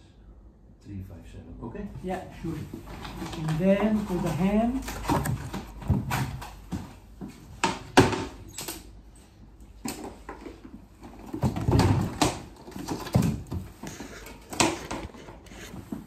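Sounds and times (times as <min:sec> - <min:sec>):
cardboard rustling: 0:02.6 - 0:07.0.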